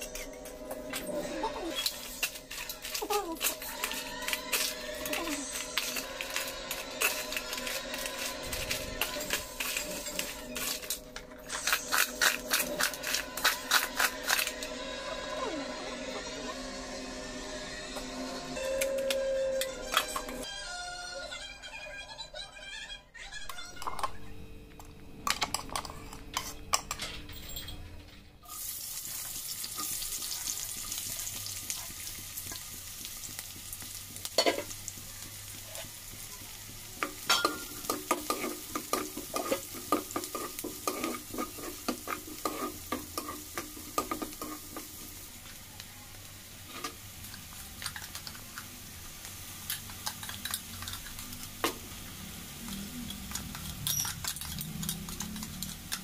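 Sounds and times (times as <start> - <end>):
ladle scraping a wok: 0.0 - 15.0, 37.2 - 45.1
vegetables sizzling in oil: 1.5 - 14.9, 28.4 - 56.0.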